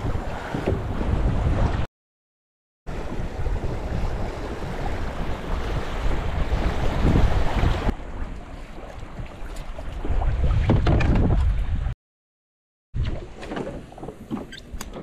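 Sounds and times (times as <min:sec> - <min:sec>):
water washing along kayak hull: 0:00.0 - 0:01.9, 0:02.9 - 0:11.9, 0:13.0 - 0:15.0
wind buffeting microphone: 0:00.0 - 0:01.9, 0:02.9 - 0:08.4, 0:09.0 - 0:12.0.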